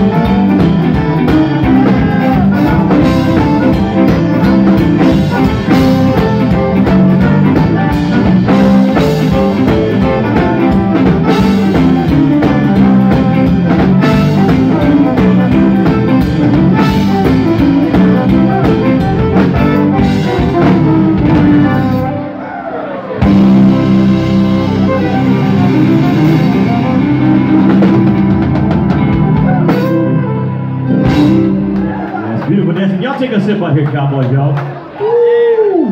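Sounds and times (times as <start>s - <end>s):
button accordion: 0.0s - 22.2s
drum kit: 0.0s - 22.4s, 23.0s - 34.3s
electric guitar: 0.0s - 33.0s
fiddle: 23.2s - 31.6s.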